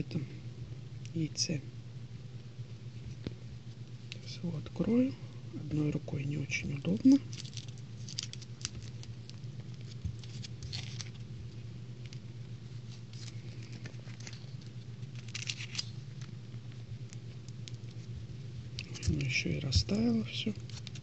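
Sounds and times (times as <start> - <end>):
low steady hum: 0.0 - 21.0
foil wrapper crinkling: 6.9 - 18.1, 18.7 - 21.0.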